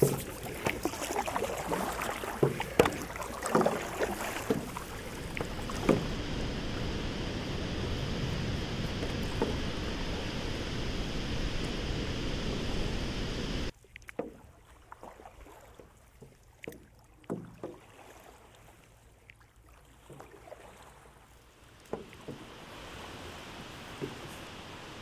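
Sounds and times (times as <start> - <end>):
paddle splashing in water: 0.0 - 25.0
soft rush of water: 0.0 - 25.0
steady rushing noise: 2.4 - 13.7.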